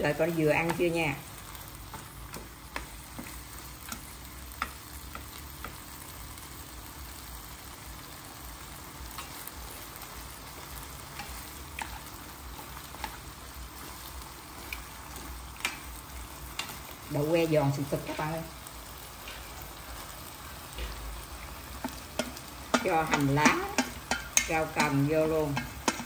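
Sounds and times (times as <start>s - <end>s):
food sizzling in a frying pan: 0.0s - 26.0s
chopsticks clicking against a pan: 1.9s - 5.8s, 14.6s - 15.9s, 16.5s - 16.9s, 21.8s - 26.0s.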